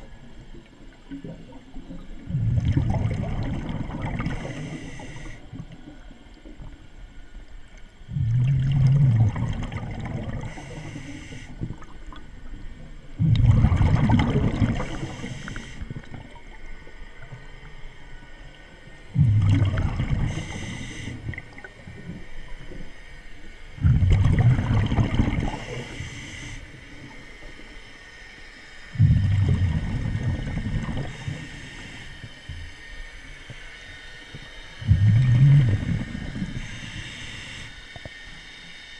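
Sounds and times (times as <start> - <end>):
exhaled bubbles rushing: 1.1 - 4.8, 8.1 - 10.8, 13.2 - 16.5, 19.1 - 22.2, 23.8 - 26.0, 29.0 - 31.4, 34.8 - 36.6
regulator inhalation hiss: 4.2 - 5.6, 10.3 - 11.8, 14.7 - 16.1, 20.2 - 21.6, 25.4 - 27.0, 30.9 - 32.4, 34.4 - 38.8.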